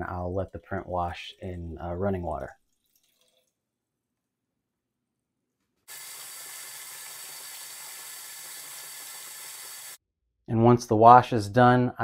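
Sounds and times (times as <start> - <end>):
faucet running water into tray: 5.9 - 10.0.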